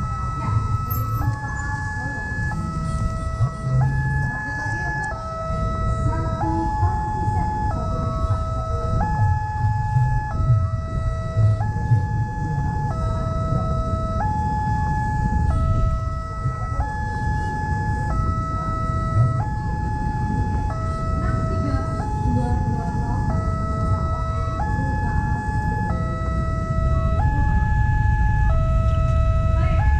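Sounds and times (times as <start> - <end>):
level crossing two-tone siren: 0.0 - 29.9
low rumble of road traffic: 0.0 - 29.9.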